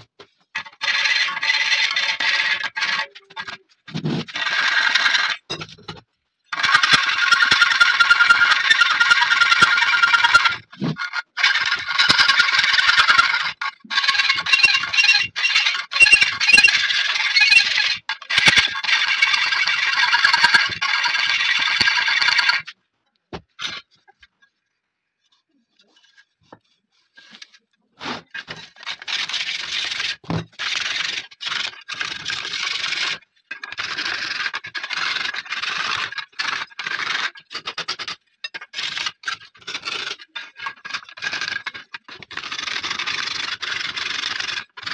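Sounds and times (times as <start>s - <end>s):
hand file rasping on metal: 6.6s - 22.6s.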